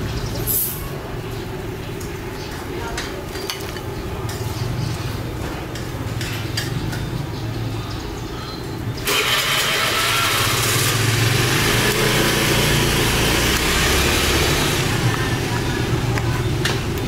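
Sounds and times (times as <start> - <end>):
vehicle engine running: 9.0 - 17.0.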